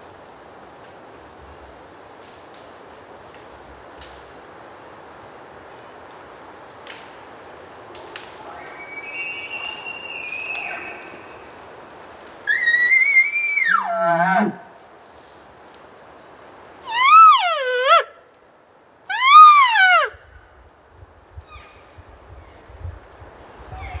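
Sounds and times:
elk bugling: 12.5 - 14.7, 16.9 - 18.1, 19.1 - 20.2
cow elk mewing: 12.5 - 14.8, 16.9 - 18.1, 19.1 - 20.2.

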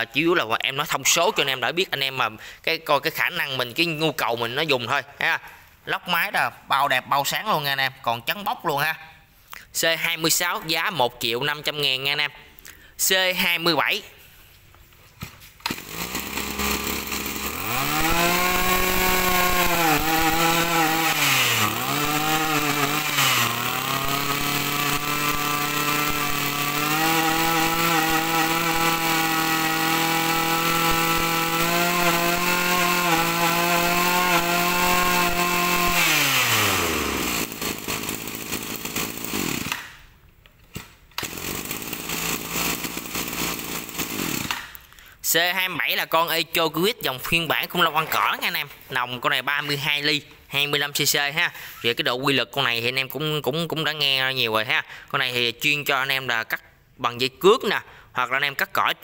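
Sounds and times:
brush cutter engine revving: 15.6 - 40.0, 41.2 - 44.8.

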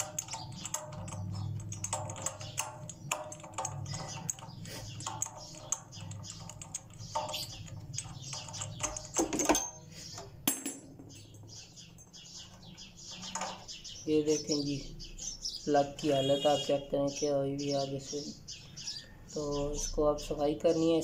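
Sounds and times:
metal clatter: 0.0 - 14.0.

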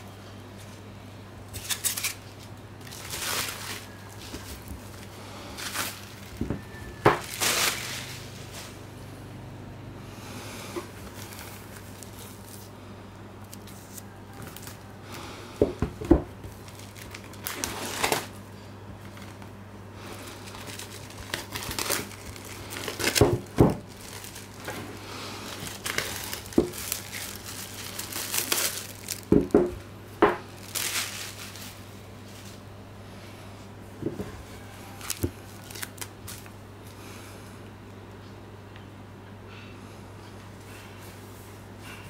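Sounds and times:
plastic wrap crinkling and tearing: 1.5 - 8.8, 10.9 - 12.8, 13.4 - 15.2, 16.0 - 29.8, 30.4 - 32.6, 34.5 - 36.6.

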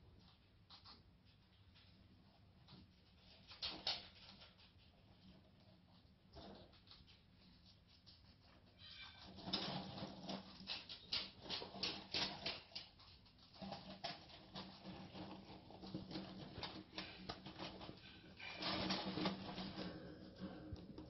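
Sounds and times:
rats rustling in paper bedding: 1.6 - 21.0.

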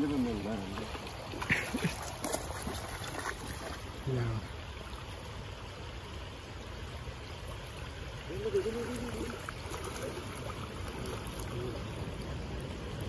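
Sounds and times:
stream water running: 0.0 - 13.0
faint wavering voice-like sound: 8.3 - 9.4.

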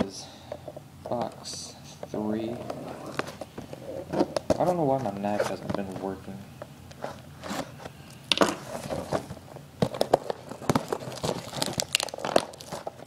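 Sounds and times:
cardboard box being opened: 8.4 - 13.0.

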